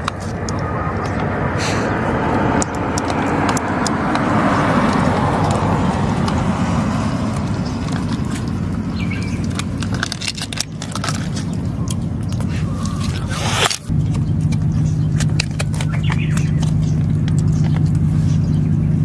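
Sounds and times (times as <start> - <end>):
road vehicle passing: 0.0 - 19.0.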